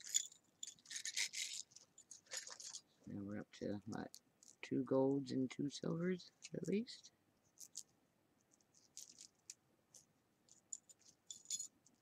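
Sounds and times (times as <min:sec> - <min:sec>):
jewelry chains and beads clinking: 0:00.0 - 0:02.8, 0:08.8 - 0:09.5, 0:10.5 - 0:12.0.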